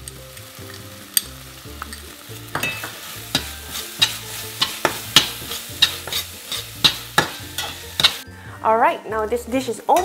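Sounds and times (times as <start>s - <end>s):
sauce sizzling: 0.0s - 8.6s
metal spatula scraping frying pan: 2.7s - 8.2s.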